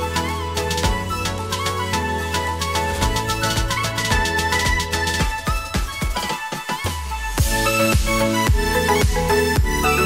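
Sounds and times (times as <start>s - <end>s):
electronic music with drum beat: 0.0s - 10.0s
heavy bass line: 7.4s - 10.0s.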